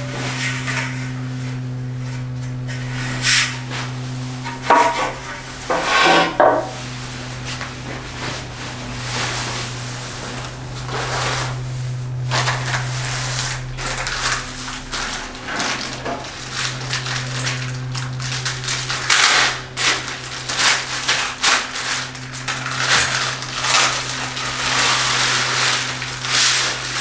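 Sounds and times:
steady low hum: 0.0s - 27.0s
packing wrap crinkling: 10.2s - 27.0s.

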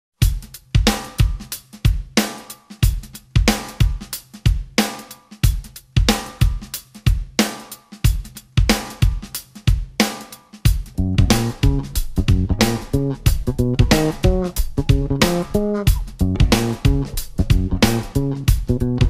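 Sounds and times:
hi-hat: 0.2s - 19.0s
snare drum: 0.2s - 19.0s
bass drum: 10.7s - 19.0s.

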